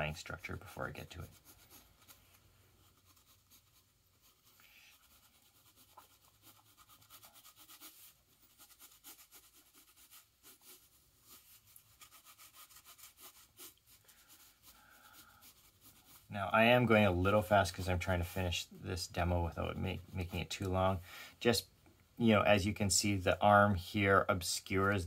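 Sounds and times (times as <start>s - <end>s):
pencil scratching on paper: 1.1s - 16.3s.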